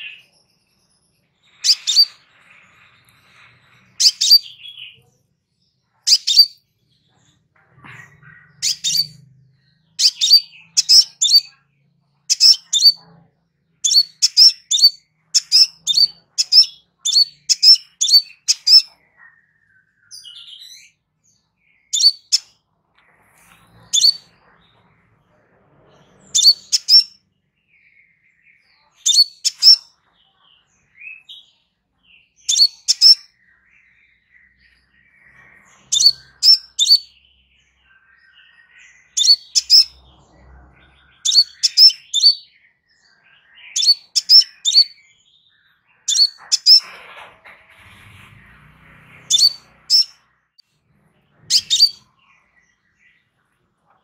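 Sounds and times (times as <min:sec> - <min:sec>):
bird high chip calls: 0:04.0 - 0:04.6, 0:06.1 - 0:06.6, 0:10.0 - 0:11.5, 0:13.9 - 0:18.9, 0:26.4 - 0:27.1, 0:43.7 - 0:45.0, 0:49.3 - 0:50.2, 0:51.5 - 0:52.0.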